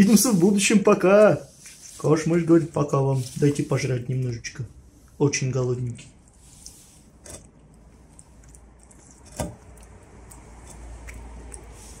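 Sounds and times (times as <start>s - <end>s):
cat eating from a bowl: 5.9s - 12.0s.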